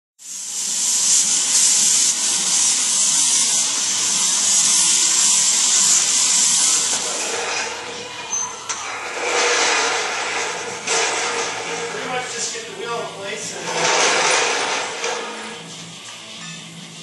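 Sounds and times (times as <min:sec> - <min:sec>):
compressed air hissing from hose: 0:00.2 - 0:07.9.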